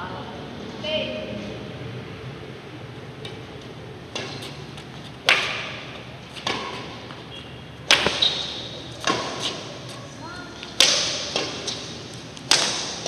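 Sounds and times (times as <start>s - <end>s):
racket hitting shuttlecock: 4.1s - 7.2s, 7.8s - 13.0s.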